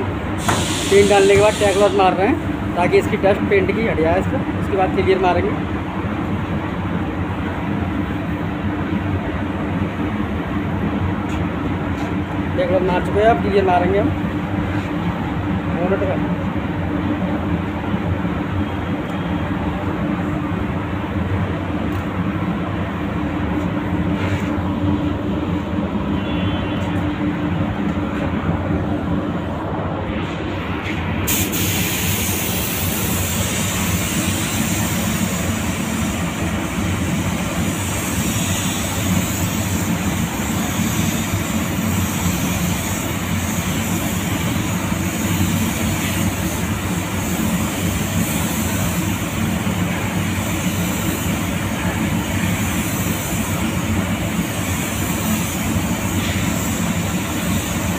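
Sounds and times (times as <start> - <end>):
ventilation fans humming: 0.0 - 57.9
high constant hiss: 31.2 - 57.9.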